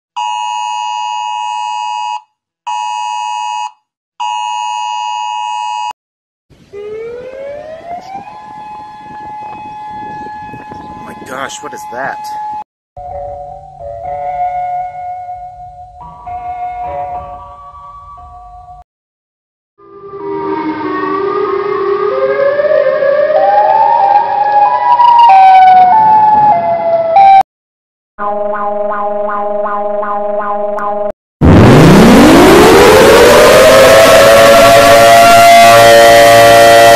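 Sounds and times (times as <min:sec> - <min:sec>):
emergency alert siren: 0:00.2 - 0:05.9, 0:06.7 - 0:17.6, 0:19.8 - 0:27.5, 0:28.2 - 0:36.9.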